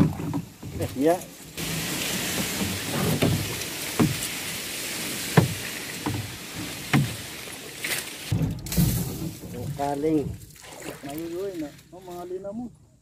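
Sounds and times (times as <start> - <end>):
leaves rustling against boat hull: 0.0 - 12.7
knocks on boat: 2.5 - 4.3, 5.3 - 6.3, 6.9 - 7.2.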